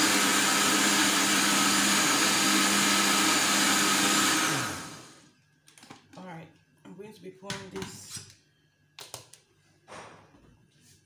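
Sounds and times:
blender whirring: 0.0 - 5.3.

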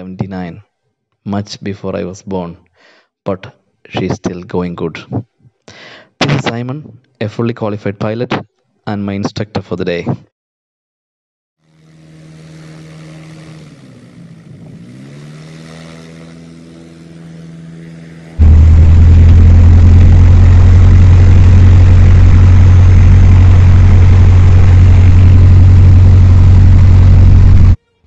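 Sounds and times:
light aircraft engine and propeller: 11.6 - 27.8.

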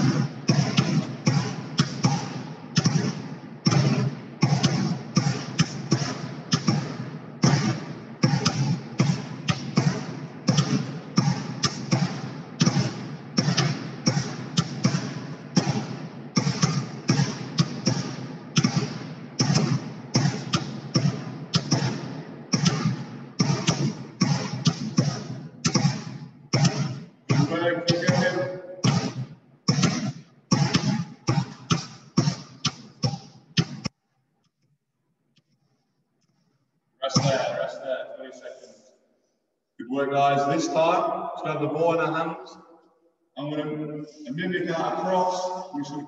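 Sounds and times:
balls caught in hands: 0.2 - 34.0
footballs bouncing on hard floor: 3.7 - 33.9.

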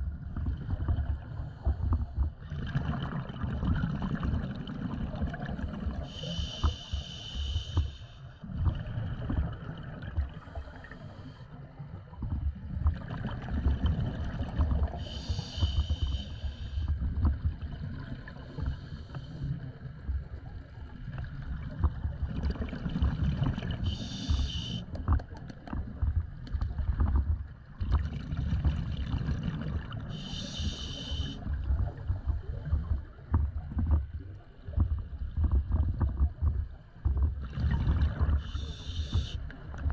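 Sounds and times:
exhaled air bubbles crackling: 0.0 - 39.9
hissing regulator inhalations: 6.1 - 8.3, 15.0 - 16.9, 23.8 - 24.9, 30.1 - 31.5, 38.4 - 39.4.

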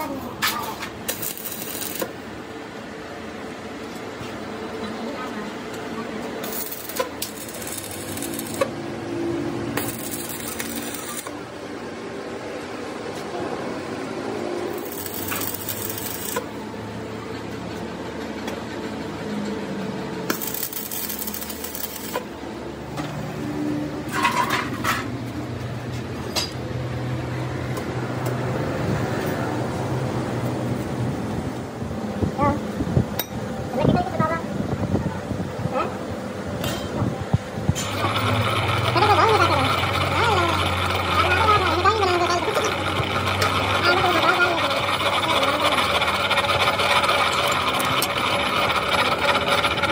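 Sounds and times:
machine humming: 0.0 - 3.8, 4.5 - 13.0, 13.7 - 24.1, 37.2 - 49.9.

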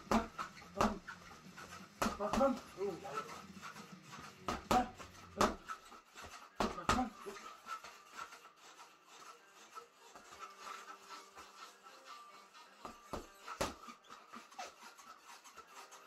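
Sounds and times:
gloves punching reflex bag: 0.0 - 2.9, 3.6 - 7.2, 12.8 - 14.0.

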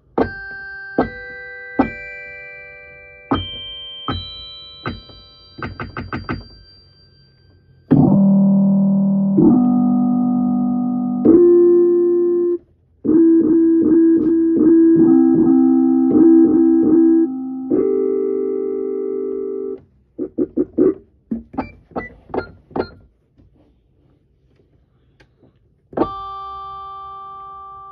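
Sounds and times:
electric keyboard chords: 7.9 - 21.7.

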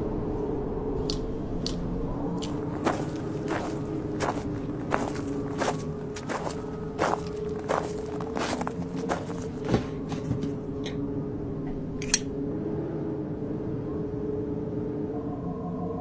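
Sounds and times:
low steady hum: 0.0 - 16.0
footsteps crunching over trash: 2.4 - 10.6
sharp click: 12.0 - 12.3.

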